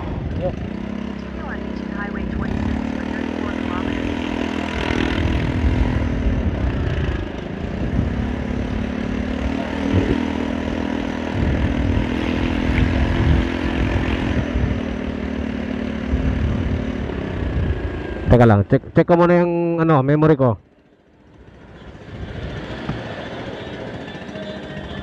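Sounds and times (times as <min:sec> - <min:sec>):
motorcycle engine running: 0:00.0 - 0:19.8, 0:20.6 - 0:25.0
wind buffeting microphone: 0:04.7 - 0:15.1, 0:16.0 - 0:18.3.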